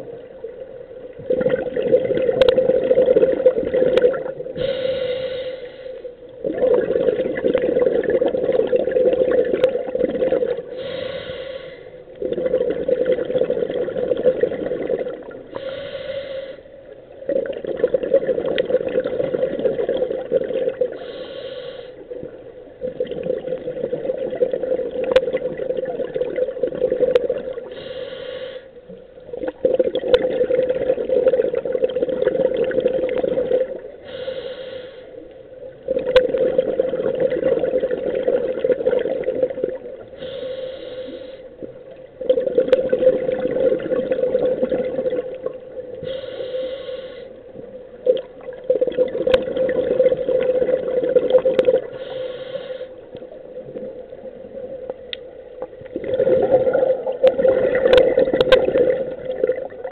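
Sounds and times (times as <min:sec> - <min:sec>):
bubbling exhaust underwater: 0:00.0 - 0:59.9
regulator inhalation hiss: 0:04.6 - 0:06.1, 0:10.7 - 0:12.0, 0:15.5 - 0:16.8, 0:21.0 - 0:22.0, 0:27.7 - 0:28.8, 0:34.0 - 0:35.2, 0:40.2 - 0:41.6, 0:46.0 - 0:47.4, 0:51.9 - 0:53.1.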